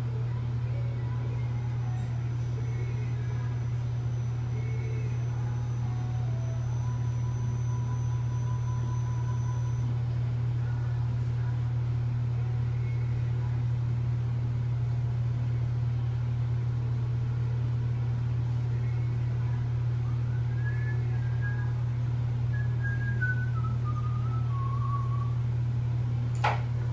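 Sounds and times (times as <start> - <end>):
medical machine humming: 0.0 - 26.9
faint high tone: 0.7 - 10.0.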